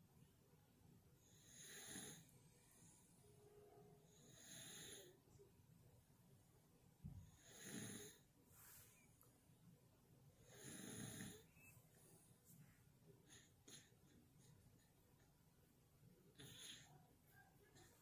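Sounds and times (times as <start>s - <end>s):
slow nasal breathing: 16.4s - 17.0s.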